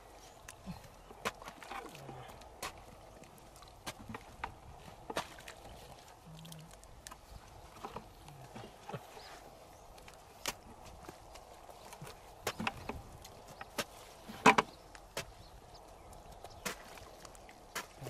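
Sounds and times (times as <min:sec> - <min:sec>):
hoe and stick striking dry mud: 0:01.2 - 0:03.0, 0:03.6 - 0:05.7, 0:10.4 - 0:11.2, 0:12.0 - 0:15.5, 0:16.5 - 0:17.1, 0:17.7 - 0:18.0.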